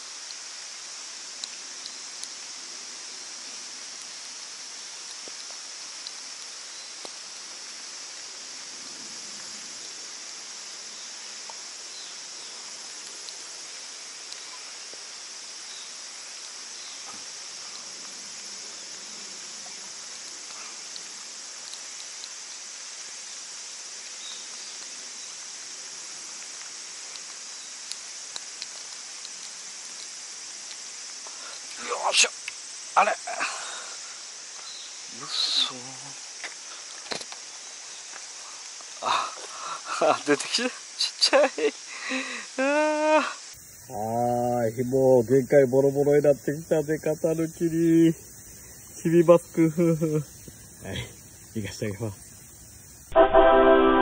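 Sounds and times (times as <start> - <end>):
high-pitched insect chorus: 0.0 - 53.8
faint ticks: 1.3 - 2.4, 3.9 - 7.5, 11.4 - 12.2, 12.8 - 15.1, 19.0 - 23.1, 26.3 - 31.8, 32.4 - 32.8, 49.8 - 53.0.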